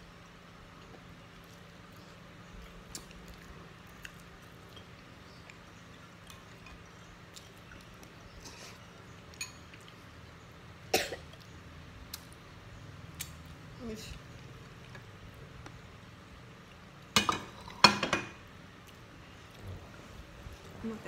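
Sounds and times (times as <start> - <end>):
faint low hum: 0.0 - 21.0
small clicks and mouth sounds: 0.7 - 10.4, 11.2 - 12.5, 13.1 - 17.1
person eating: 0.9 - 5.6
person coughing: 10.9 - 11.2.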